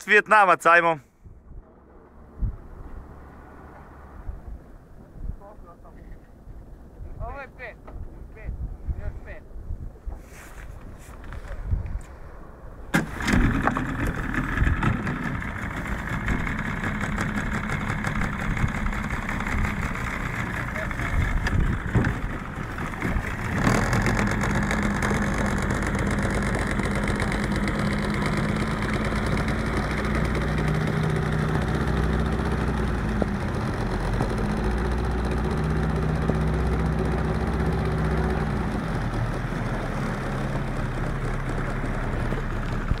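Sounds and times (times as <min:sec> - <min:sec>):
motorboat engine running: 0:13.0 - 0:43.0.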